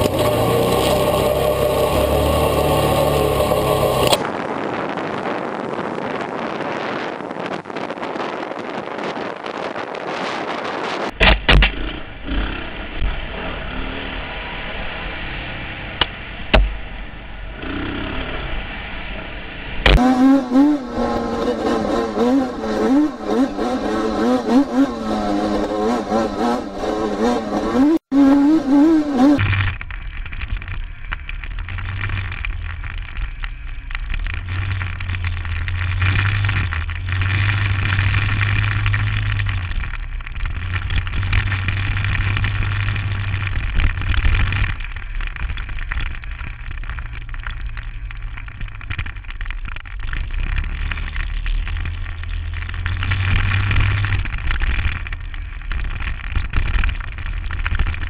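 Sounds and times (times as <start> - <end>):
engine revving: 0.0 - 4.3, 11.6 - 16.6, 17.5 - 18.9, 19.8 - 29.6
rumbling ground noise: 0.0 - 58.0
vehicle driving on dirt trail: 0.0 - 58.0.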